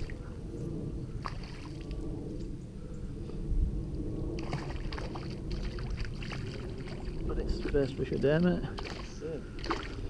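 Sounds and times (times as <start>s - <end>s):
low microphone rumble: 0.0s - 10.0s
fish splashing: 8.8s - 10.0s.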